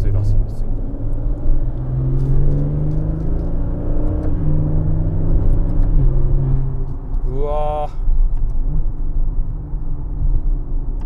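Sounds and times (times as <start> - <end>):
man talking: 0.0 - 0.7, 7.3 - 8.0
car engine accelerating: 0.0 - 7.3.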